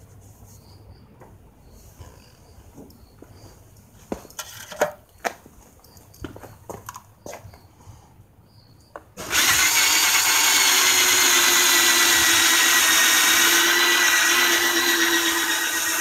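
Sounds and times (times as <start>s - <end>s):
electric drill whining: 9.2s - 16.0s.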